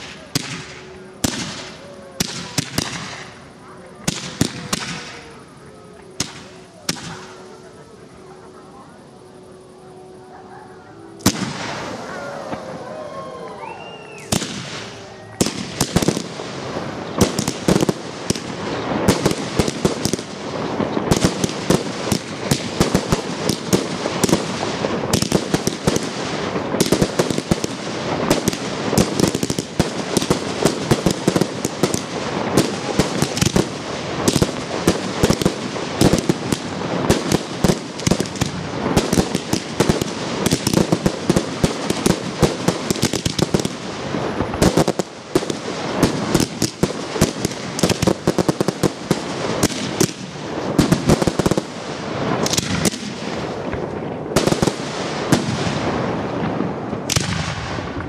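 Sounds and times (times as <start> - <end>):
fireworks launch thumps and bangs: 52.4 - 55.8, 56.4 - 58.0.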